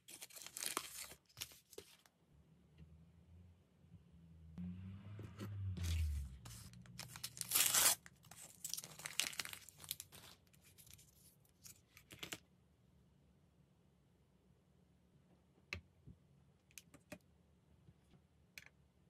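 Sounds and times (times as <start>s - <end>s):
plastic packaging tearing and crinkling: 0.0s - 1.8s, 5.8s - 11.0s.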